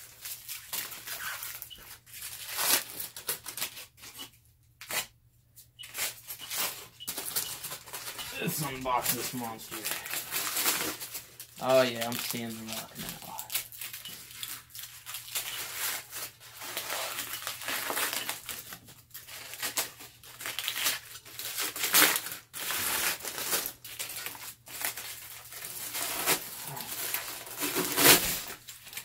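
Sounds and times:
aluminium foil crinkling: 0:00.0 - 0:29.0.

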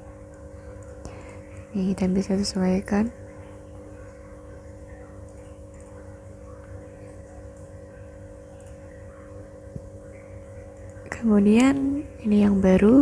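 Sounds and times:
low electrical drone: 0:00.0 - 0:13.0.

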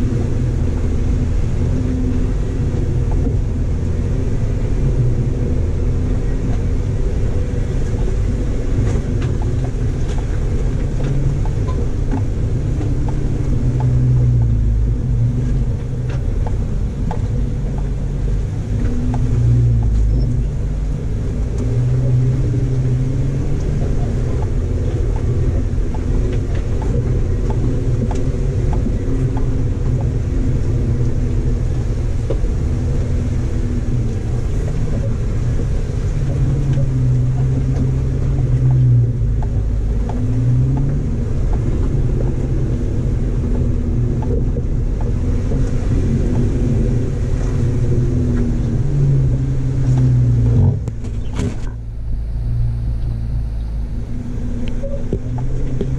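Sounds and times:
engine rumbling: 0:00.0 - 0:55.9
gravel ticks and crackles: 0:00.0 - 0:55.9.

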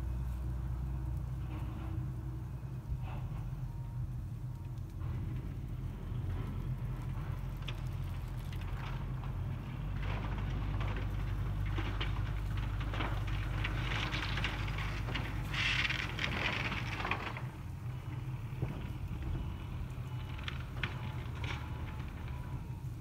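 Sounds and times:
low rumble: 0:00.0 - 0:23.0
dry grass rustling: 0:05.6 - 0:23.0.

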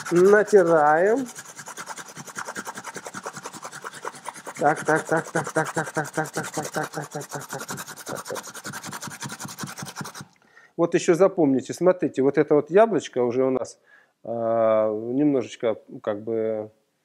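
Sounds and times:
apple being grated: 0:00.0 - 0:10.4.

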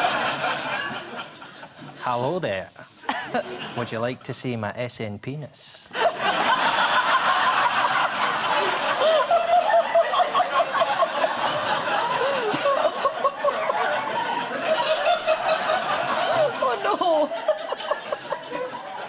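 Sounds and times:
audience laughing: 0:00.0 - 0:02.0, 0:05.9 - 0:19.0.

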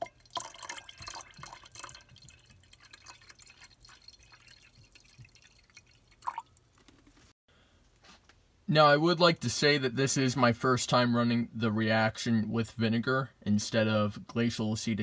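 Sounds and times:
liquid pouring into glass beaker: 0:00.0 - 0:06.9.

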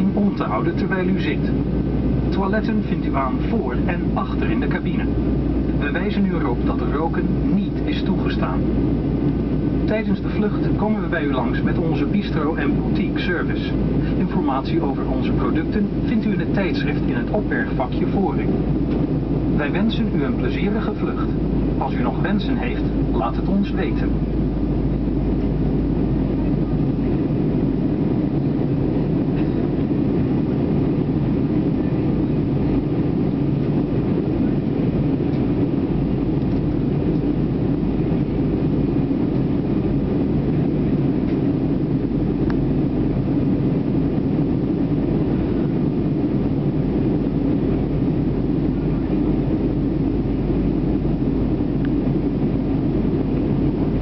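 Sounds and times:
airplane cabin engine rush: 0:00.0 - 0:54.0.

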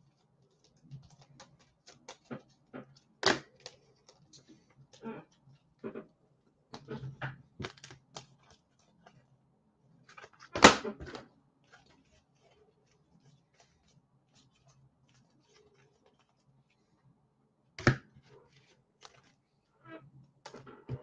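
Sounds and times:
trading cards clicking and rustling: 0:00.1 - 0:05.4, 0:07.6 - 0:09.2.

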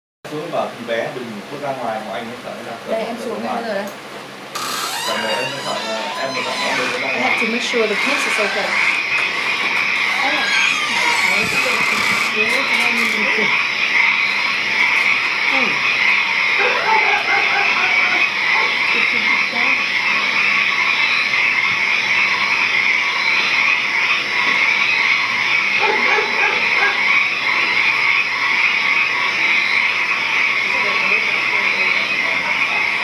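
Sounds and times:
frogs croaking: 0:00.3 - 0:33.0
insects chirping: 0:00.9 - 0:33.0.

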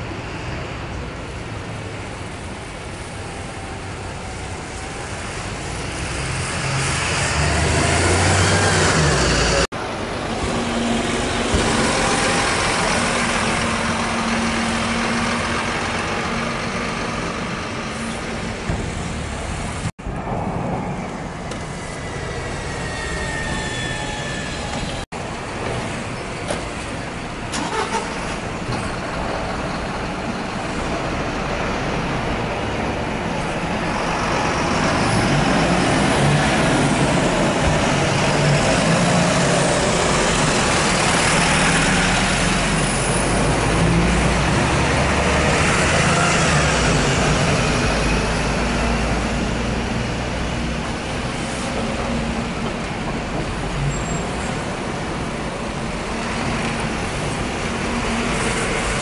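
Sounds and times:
buses driving past: 0:00.0 - 0:59.0
truck driving past: 0:05.4 - 0:25.0, 0:27.6 - 0:52.6.

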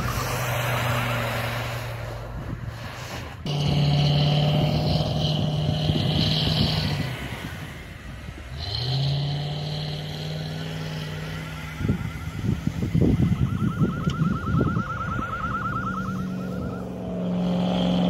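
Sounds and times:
engine revving high under load: 0:03.4 - 0:13.4, 0:15.1 - 0:18.0.

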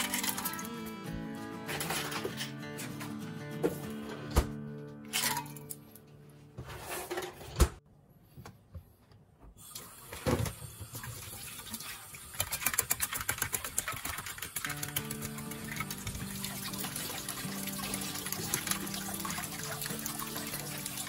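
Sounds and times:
water running into sink: 0:09.6 - 0:21.0.

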